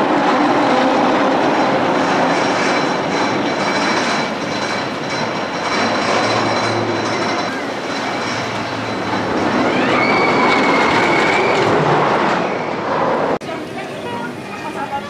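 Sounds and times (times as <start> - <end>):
rail vehicle rumbling on track: 0.0 - 15.0
high squeal: 2.6 - 13.2.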